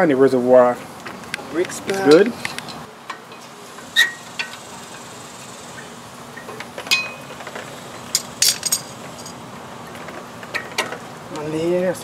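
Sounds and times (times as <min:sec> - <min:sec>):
metal clicks and clinks: 0:08.1 - 0:09.4.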